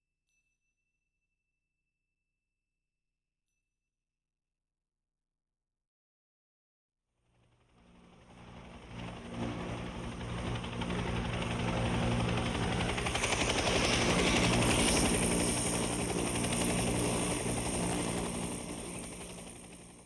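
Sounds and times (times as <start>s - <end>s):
helicopter rotor chop: 7.4s - 20.0s.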